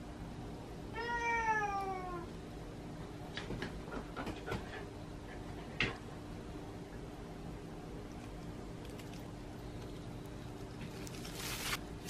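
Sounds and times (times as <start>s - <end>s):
faint hum: 0.0s - 12.0s
cat crying: 0.9s - 2.3s.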